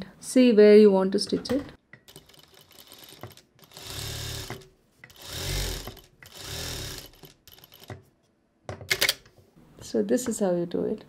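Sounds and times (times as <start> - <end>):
industrial sewing machine stitching: 2.1 - 7.9.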